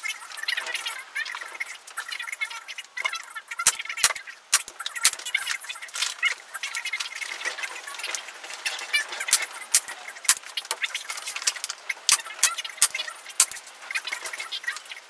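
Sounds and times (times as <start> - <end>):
plastic sheet crinkling: 0.0 - 15.0
tape being applied by hand: 7.4 - 14.6.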